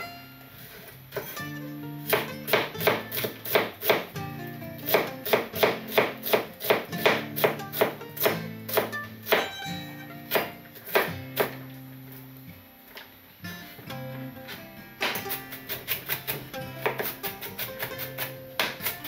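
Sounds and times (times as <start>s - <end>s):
soft background music: 0.0s - 19.0s
knife chopping on wooden board: 2.1s - 4.1s, 4.9s - 9.5s, 10.3s - 11.6s, 15.0s - 19.0s.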